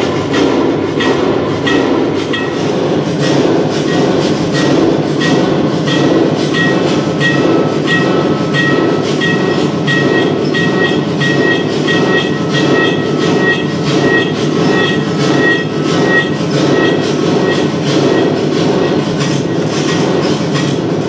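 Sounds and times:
clattering machine-like dance rhythm: 0.0 - 21.0.

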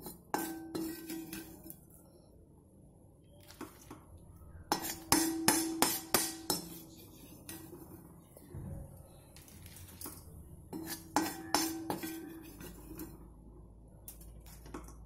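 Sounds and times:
metal ladle scraping an iron pan: 0.0 - 1.8, 4.7 - 8.1, 9.5 - 13.2.

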